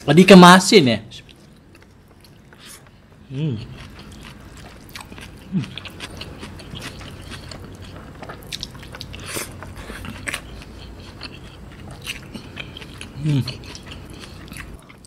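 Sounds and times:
wet chewing and lip smacks: 3.7s - 15.0s.

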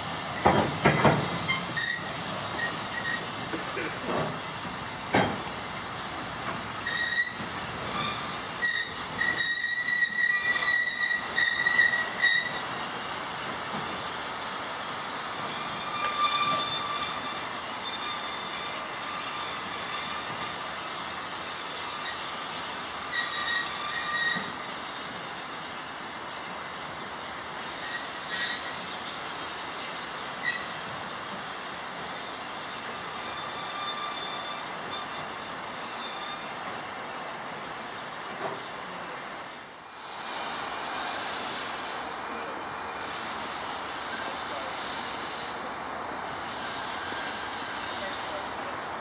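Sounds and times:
steam hissing: 0.0s - 49.0s
train rolling rumble: 0.0s - 49.0s
wheel flanges squealing: 0.4s - 3.3s, 6.8s - 12.8s, 15.4s - 20.6s, 23.1s - 24.7s, 27.8s - 29.3s, 30.4s - 30.8s, 32.3s - 36.8s.

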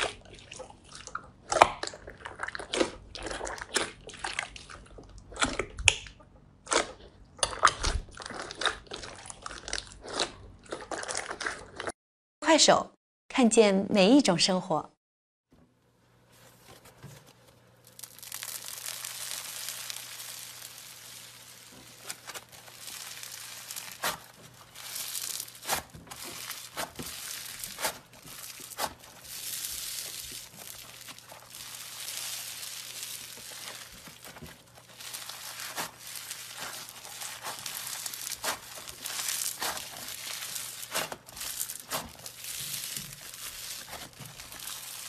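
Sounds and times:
foam slime crunchy crackling: 16.5s - 45.0s
foam beads popping: 17.7s - 45.0s.

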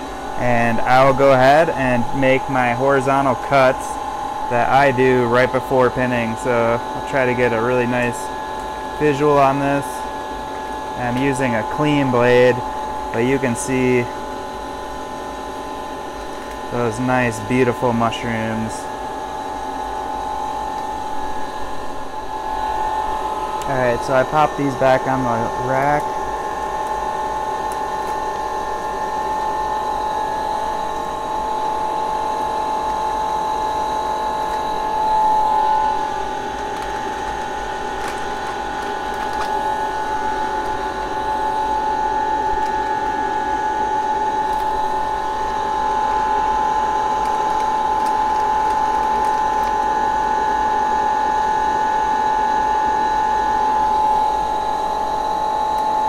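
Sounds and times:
mechanical whine of machine: 0.0s - 56.0s.

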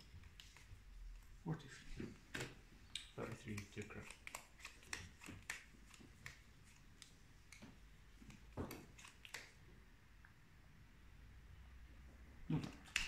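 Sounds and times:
cards clicking and tapping on mat: 3.2s - 9.5s, 12.6s - 13.0s.

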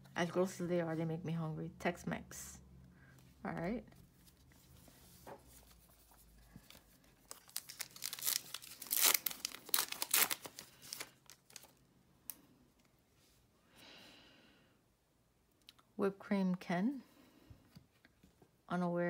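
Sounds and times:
foil wrapper tearing and crinkling: 7.2s - 11.8s.

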